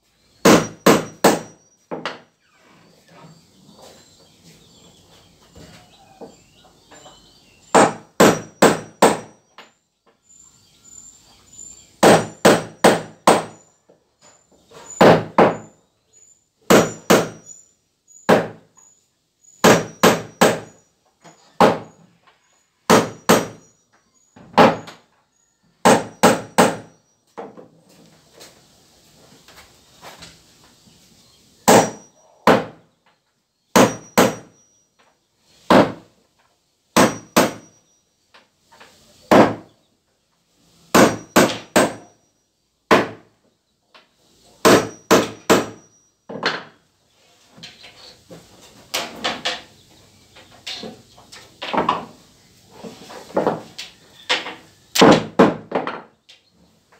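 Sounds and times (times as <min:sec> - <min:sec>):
hammer nailing wooden floorboards: 0:00.4 - 0:02.2, 0:07.7 - 0:09.4, 0:12.0 - 0:13.6, 0:15.0 - 0:15.7, 0:16.7 - 0:17.4, 0:18.3 - 0:18.6, 0:19.6 - 0:20.8, 0:21.6 - 0:21.9, 0:22.9 - 0:23.6, 0:24.5 - 0:25.0, 0:25.8 - 0:26.9, 0:31.6 - 0:32.8, 0:33.8 - 0:34.5, 0:35.7 - 0:36.1, 0:37.0 - 0:37.7, 0:39.3 - 0:39.7, 0:40.9 - 0:42.1, 0:42.9 - 0:43.3, 0:44.6 - 0:46.7, 0:55.0 - 0:56.1.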